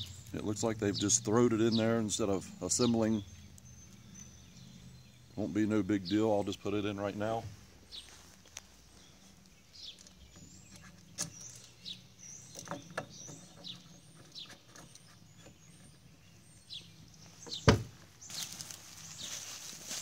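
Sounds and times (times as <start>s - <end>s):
bird chirping: 0.0s - 20.0s
rustle: 7.5s - 16.0s, 16.6s - 20.0s
loud thump: 17.6s - 18.0s.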